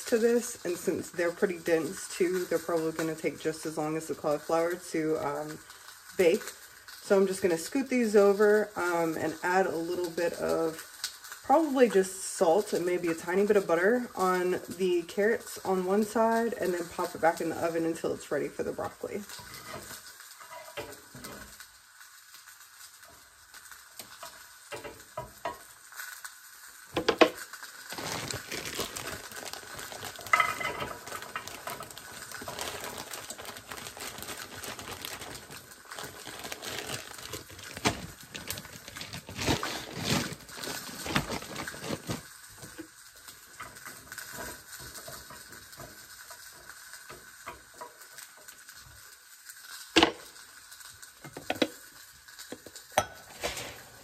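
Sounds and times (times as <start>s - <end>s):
fish sizzling in skillet: 0.0s - 54.0s
carrots tumbling into dish: 27.0s - 42.3s
plastic bag rustling: 27.0s - 42.8s, 53.2s - 54.0s.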